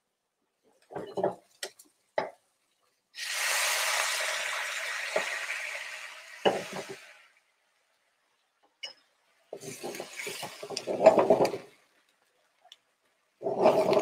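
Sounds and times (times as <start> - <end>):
loud sizzle in hot pan: 3.2 - 7.3, 9.6 - 11.0.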